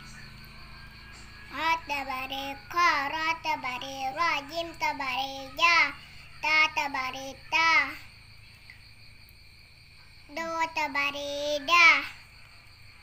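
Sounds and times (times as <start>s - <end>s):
faint steady high tone: 0.0s - 9.3s
child chanting syllables: 1.1s - 8.1s, 10.2s - 12.3s.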